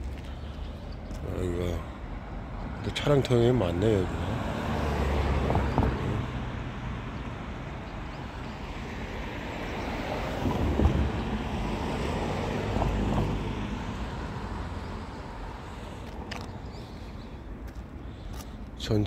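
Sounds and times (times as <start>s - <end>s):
cars driving past: 0.0s - 18.8s.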